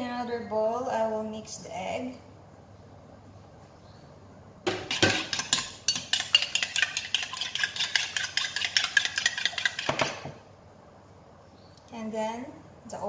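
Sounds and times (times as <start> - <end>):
whisk clinking against glass bowl: 4.7 - 10.3.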